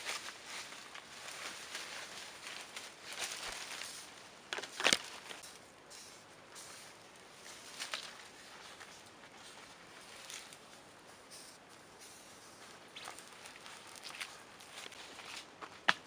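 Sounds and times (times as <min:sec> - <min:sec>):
twigs cracking: 0:00.0 - 0:05.6, 0:07.1 - 0:10.7, 0:12.6 - 0:16.0
leaves rustling: 0:00.0 - 0:16.0
branch snapping: 0:04.5 - 0:05.4.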